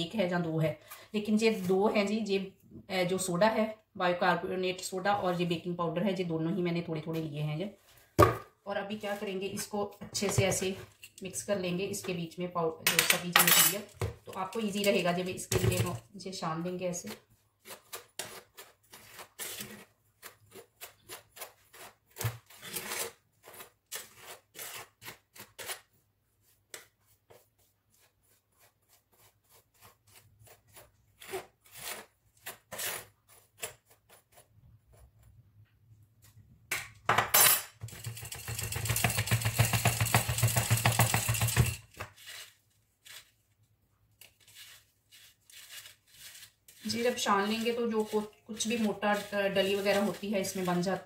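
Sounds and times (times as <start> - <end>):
spoon tapping and scraping bowl: 37.2 - 42.0.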